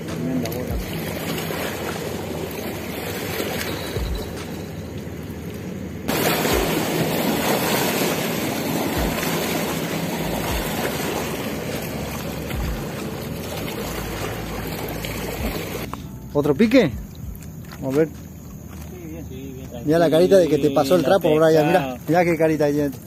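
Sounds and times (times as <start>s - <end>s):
waves washing onto riverbank: 0.0s - 15.9s
wind thumps on microphone: 8.9s - 9.4s.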